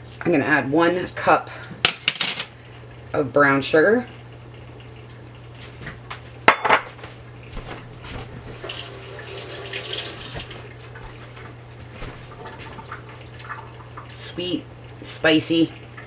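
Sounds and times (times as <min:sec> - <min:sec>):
steady low hum: 0:00.0 - 0:16.0
kitchen tap running: 0:08.4 - 0:11.5, 0:12.3 - 0:14.3.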